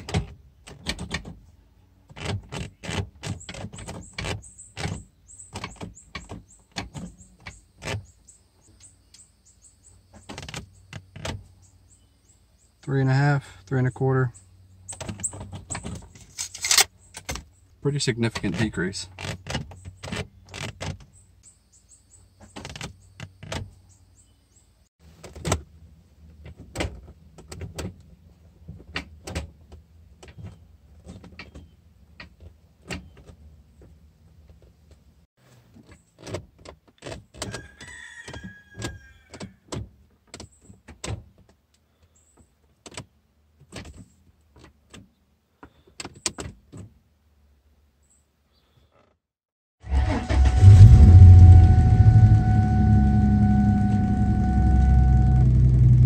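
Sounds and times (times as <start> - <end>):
gear lever clicks and clunks: 0.0 - 1.4, 2.1 - 8.1, 14.9 - 17.5, 18.1 - 21.2, 22.4 - 23.7, 28.7 - 33.4.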